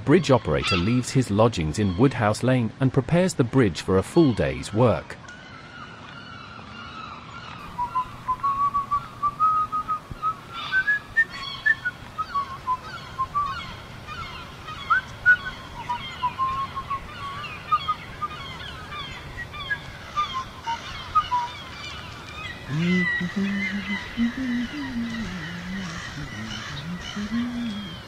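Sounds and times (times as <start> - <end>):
birds chirping: 0.0 - 2.6, 4.1 - 28.0
low steady background: 7.6 - 28.0
person whistling a tune: 7.8 - 10.0.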